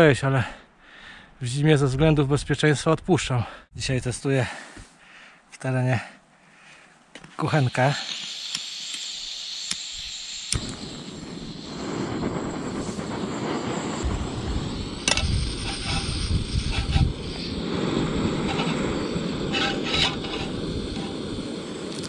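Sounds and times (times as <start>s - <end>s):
stove burner hissing: 7.4s - 22.0s
igniter clicks: 7.7s - 11.2s.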